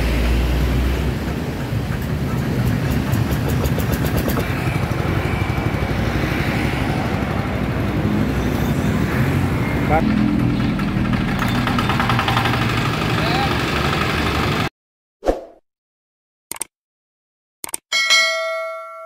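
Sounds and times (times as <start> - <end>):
small engine running: 0.8 - 14.7
fine rapid ticking: 11.0 - 14.3.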